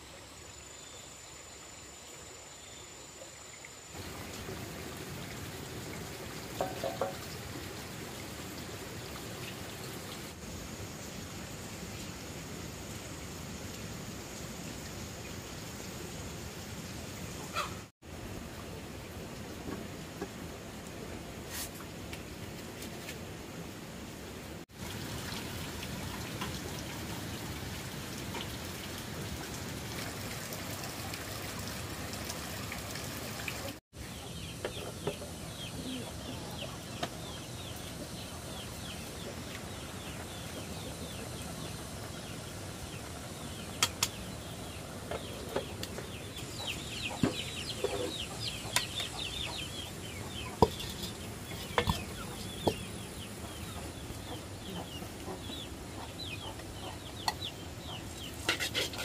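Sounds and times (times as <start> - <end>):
chickens clucking: 17.4 - 17.9, 45.1 - 59.0.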